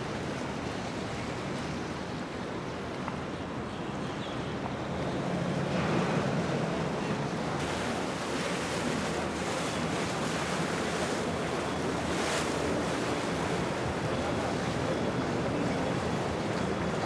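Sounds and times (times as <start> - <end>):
water and wind noise: 0.0 - 17.0
boat engines running: 4.7 - 17.0.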